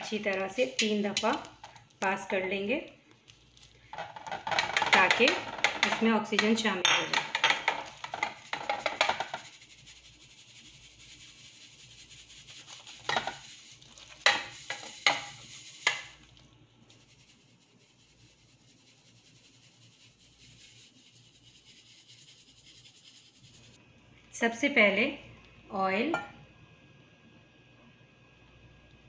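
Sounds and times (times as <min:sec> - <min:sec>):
sieve rattling against bowl: 0:03.9 - 0:09.5.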